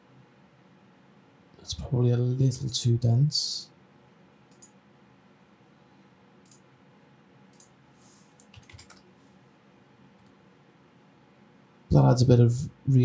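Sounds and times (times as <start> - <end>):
mouse and keyboard clicks: 4.5 - 4.8, 8.4 - 9.1.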